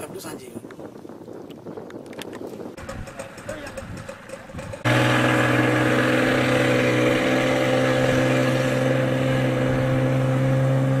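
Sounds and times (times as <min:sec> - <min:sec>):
outboard motor droning: 0:02.8 - 0:11.0.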